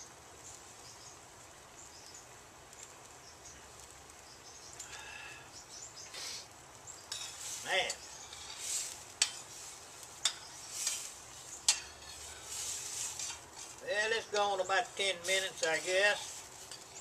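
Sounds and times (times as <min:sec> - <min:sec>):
food sizzling in skillet: 0:00.0 - 0:17.0
spoon clanking against pan: 0:07.1 - 0:09.5, 0:10.2 - 0:12.5
metal spoon scraping skillet: 0:07.1 - 0:17.0.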